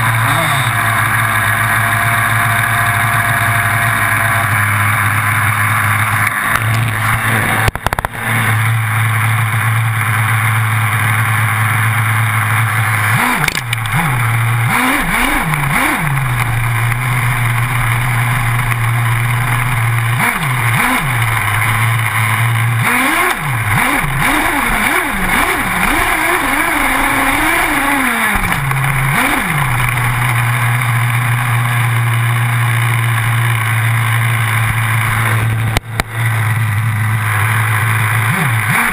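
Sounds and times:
small nitro engine revving: 0:00.0 - 0:38.9.

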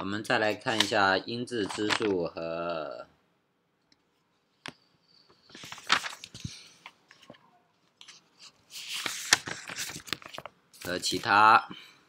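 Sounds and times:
crackling rustle: 0:05.4 - 0:07.3, 0:07.9 - 0:11.3.

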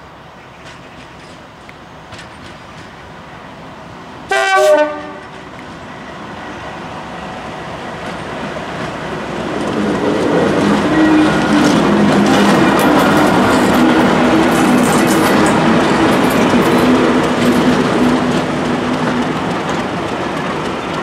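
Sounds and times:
diesel locomotive engine: 0:00.0 - 0:21.0
two-tone locomotive horn: 0:04.3 - 0:05.4, 0:10.6 - 0:12.5.

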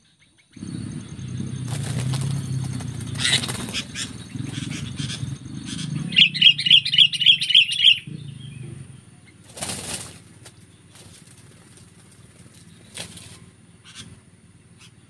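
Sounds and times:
harsh chattering bird calls: 0:00.0 - 0:15.0
wings flapping: 0:00.6 - 0:07.9, 0:09.4 - 0:14.1
birds scuffling on the ground: 0:00.6 - 0:08.0, 0:09.2 - 0:14.2.

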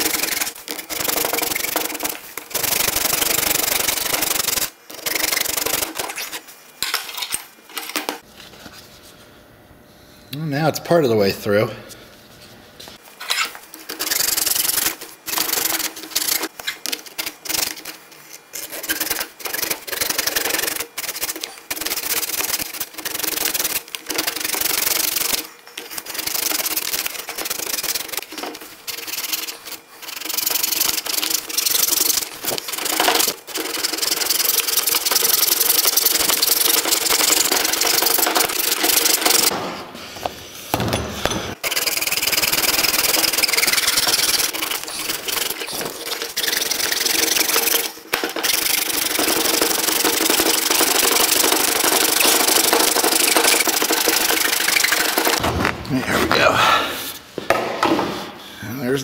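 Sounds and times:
hacksaw cutting plastic: 0:00.0 - 0:06.4, 0:13.3 - 0:39.6, 0:41.5 - 0:55.4.

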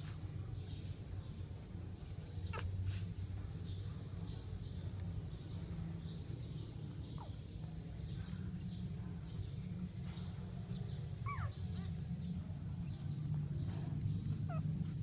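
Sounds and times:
steady low rumble: 0:00.0 - 0:15.0
puppies squeaking: 0:02.4 - 0:03.0, 0:11.2 - 0:11.9, 0:14.2 - 0:15.0.

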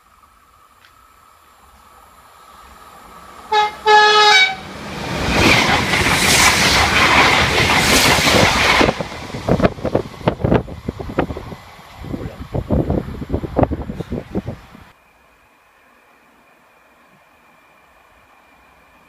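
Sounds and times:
train rushing past: 0:00.1 - 0:19.0
train horn blasts: 0:03.5 - 0:04.7
wind gusts on microphone: 0:04.8 - 0:14.9.

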